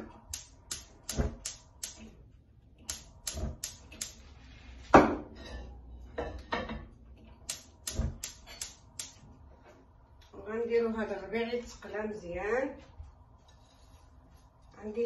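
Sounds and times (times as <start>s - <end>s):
gas igniter clicking: 0.3s - 2.0s, 2.8s - 4.2s, 7.4s - 9.2s.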